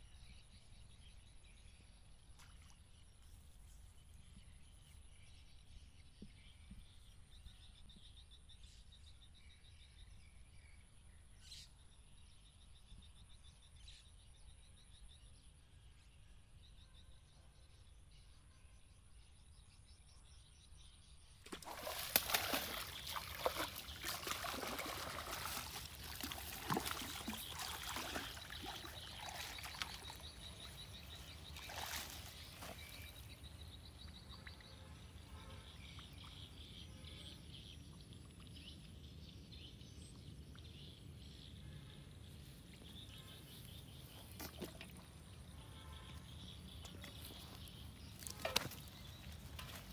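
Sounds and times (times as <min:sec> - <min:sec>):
fish splashing and thrashing in water: 0:21.5 - 0:33.3, 0:46.9 - 0:49.9.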